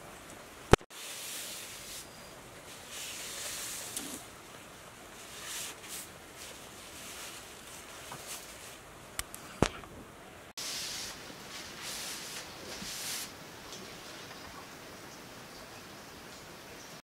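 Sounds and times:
cloth wiping sword blade: 5.2s - 8.8s, 10.6s - 13.3s.

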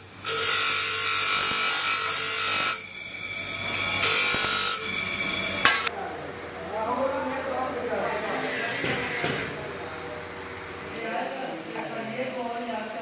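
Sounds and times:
grinding wheel grinding metal: 0.2s - 5.9s.

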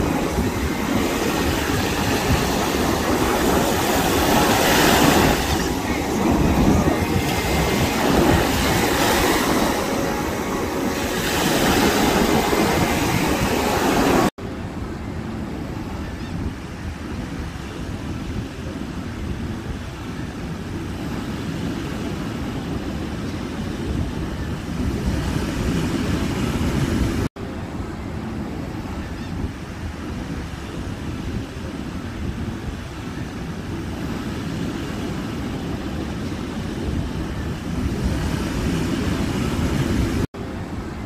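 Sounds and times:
surf breaking on beach: 0.0s - 27.7s
wind on microphone: 0.0s - 41.0s.

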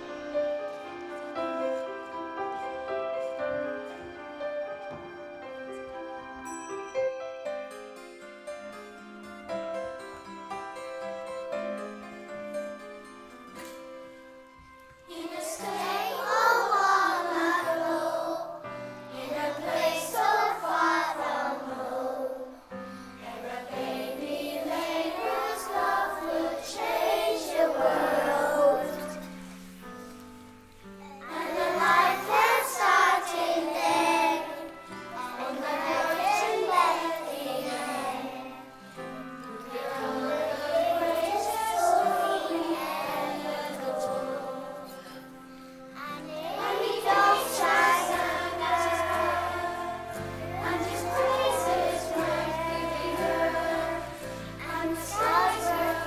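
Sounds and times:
keyboard accompaniment: 0.0s - 56.0s
children singing together: 15.0s - 29.7s, 31.0s - 56.0s.

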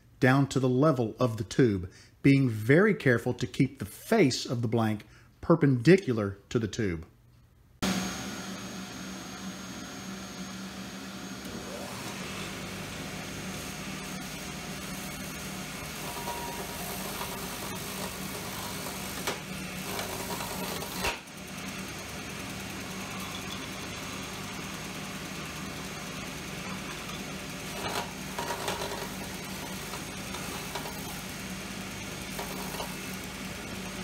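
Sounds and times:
belt sander humming: 7.8s - 34.0s.

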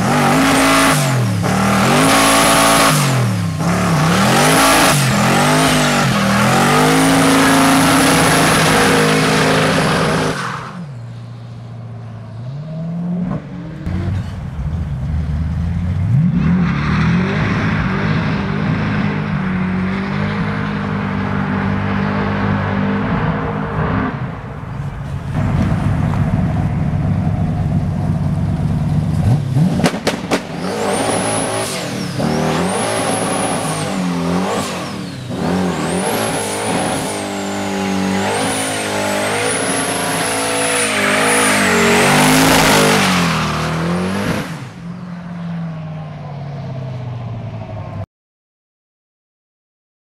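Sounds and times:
engine revving: 0.0s - 10.4s, 12.4s - 24.2s, 28.9s - 44.8s
sharp bangs: 29.2s - 33.4s.

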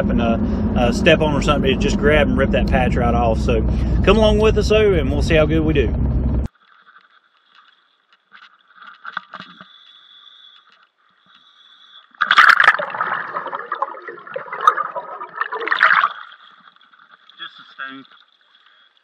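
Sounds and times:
faint underwater whine: 0.0s - 19.0s
scuba regulator bubbling: 12.0s - 17.3s.

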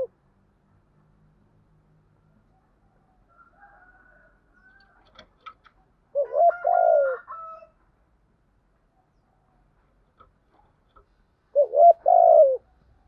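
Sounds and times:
dove cooing: 6.1s - 7.4s, 11.5s - 12.8s.

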